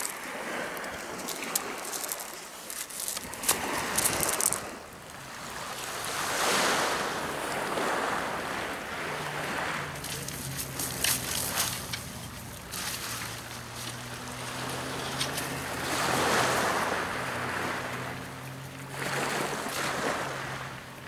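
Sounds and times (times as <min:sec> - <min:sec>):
pebbles knocking together: 0:00.0 - 0:04.8
waves washing onto pebble beach: 0:00.0 - 0:21.0.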